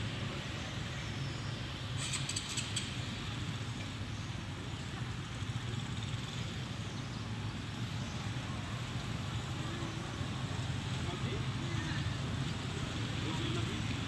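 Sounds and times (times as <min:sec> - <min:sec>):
low rumbling background noise: 0:00.0 - 0:14.0.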